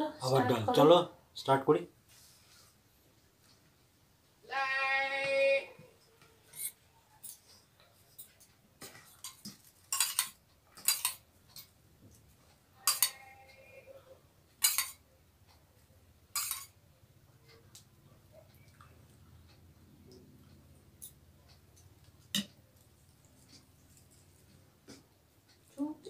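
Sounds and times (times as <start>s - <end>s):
spoon clinking on steel dishes: 8.1s - 11.7s, 12.8s - 13.3s, 14.6s - 15.0s, 16.3s - 16.8s, 22.2s - 22.6s.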